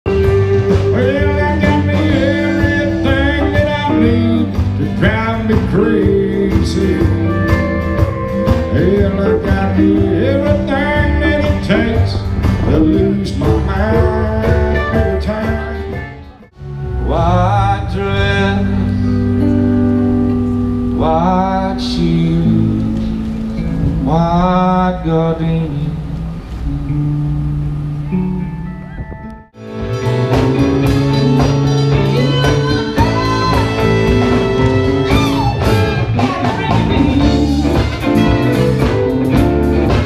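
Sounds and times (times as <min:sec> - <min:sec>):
person singing: 0:00.0 - 0:19.6, 0:20.9 - 0:26.2, 0:30.8 - 0:40.0
live band playing: 0:00.0 - 0:40.0.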